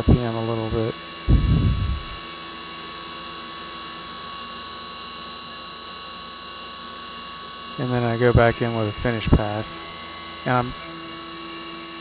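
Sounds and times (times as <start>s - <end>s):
milling machine whine: 0.0s - 2.5s, 6.8s - 12.0s
short low burst: 1.3s - 2.2s.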